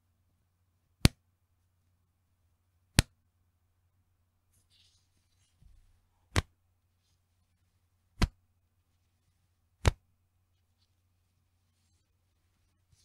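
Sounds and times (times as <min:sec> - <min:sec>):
elastic band snapping: 0:01.0 - 0:01.2, 0:02.9 - 0:03.1, 0:06.3 - 0:06.5, 0:08.2 - 0:08.4, 0:09.8 - 0:10.0
faint fabric rustling: 0:04.4 - 0:13.0.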